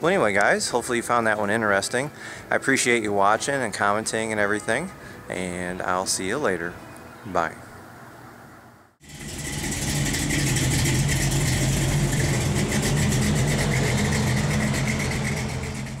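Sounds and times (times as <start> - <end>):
car engine idling: 9.0 - 16.0.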